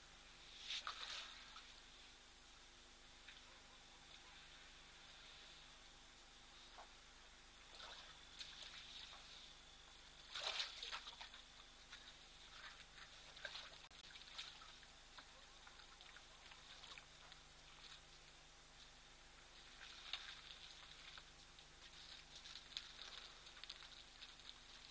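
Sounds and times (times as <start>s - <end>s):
elephant trunks drawing water: 0.7s - 1.8s, 10.2s - 14.9s, 19.5s - 24.9s
water trickling and splashing: 0.7s - 1.8s, 7.6s - 9.4s, 10.0s - 18.4s, 19.4s - 24.9s.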